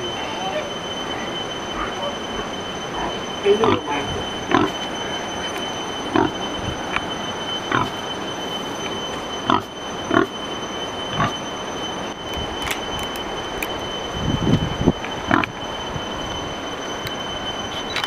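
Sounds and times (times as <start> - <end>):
pig grunting: 4.5 - 4.8.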